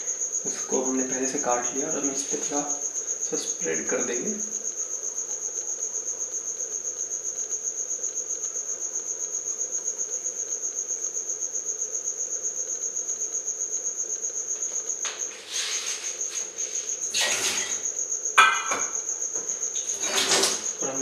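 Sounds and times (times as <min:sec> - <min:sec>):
cricket trilling: 0:00.0 - 0:21.0
short rustle: 0:15.0 - 0:17.9.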